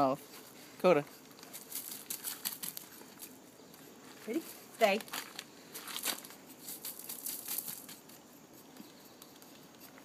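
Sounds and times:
brush scratching through dog fur: 0:06.4 - 0:10.0.

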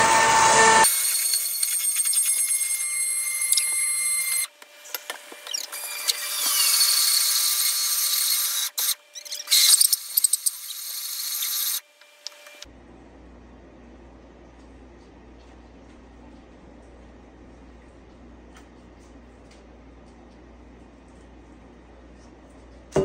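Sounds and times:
stick blender motor whine: 0:00.0 - 0:12.7.

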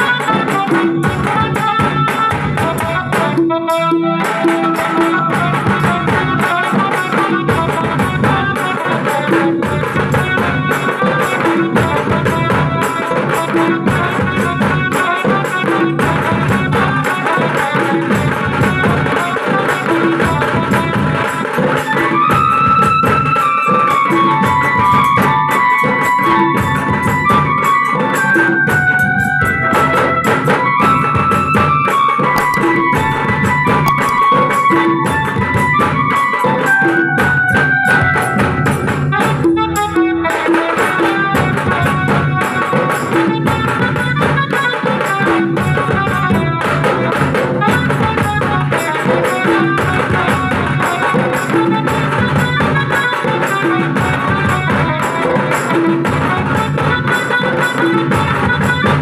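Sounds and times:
sustained melody line: 0:00.0 - 0:15.3, 0:32.0 - 0:44.6.

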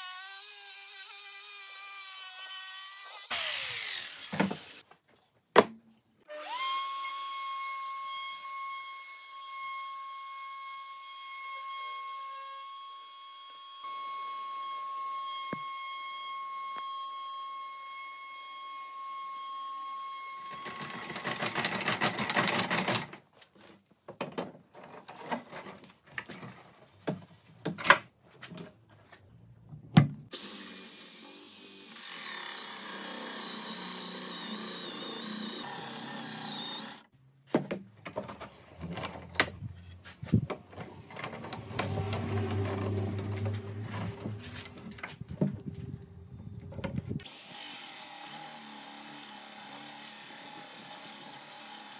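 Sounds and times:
electric drill boring into wood: 0:00.0 - 0:04.8, 0:30.3 - 0:37.1, 0:47.2 - 0:51.9
router cutting wood: 0:00.0 - 0:04.8, 0:30.3 - 0:37.1, 0:40.8 - 0:45.9, 0:46.7 - 0:51.9
table router whining: 0:30.4 - 0:37.1, 0:40.6 - 0:51.9.

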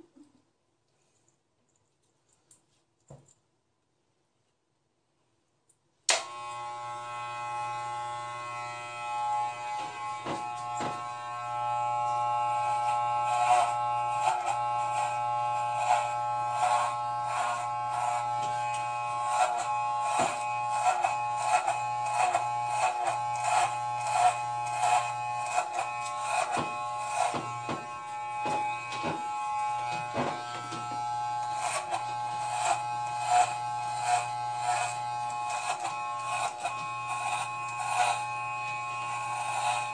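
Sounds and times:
electric hair clippers buzzing: 0:06.1 - 0:39.9
clipper blades crackling through hair: 0:18.4 - 0:28.0.

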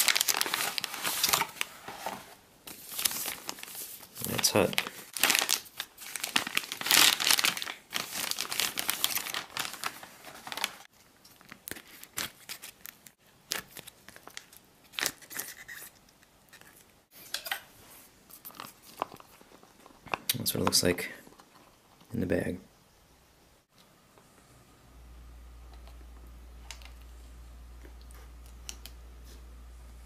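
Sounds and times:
foil packaging crinkling: 0:00.0 - 0:02.1, 0:02.7 - 0:15.9
pouch tearing open: 0:05.2 - 0:10.7.

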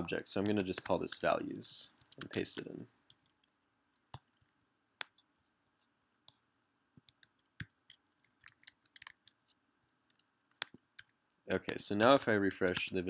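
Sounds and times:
computer keyboard typing: 0:00.4 - 0:05.3, 0:07.0 - 0:09.4, 0:10.1 - 0:13.0.

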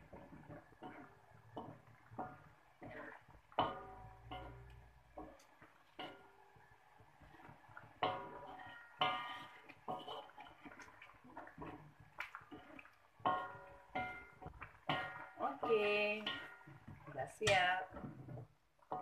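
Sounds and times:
liquid sloshing: 0:00.0 - 0:18.6
spatula knocking on wok: 0:00.0 - 0:19.0.

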